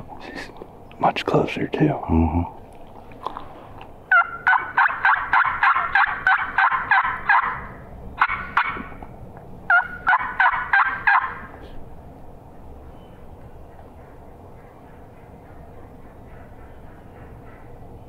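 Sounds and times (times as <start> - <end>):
turkey yelping: 4.1 - 9.0, 9.7 - 11.6, 13.8 - 17.8.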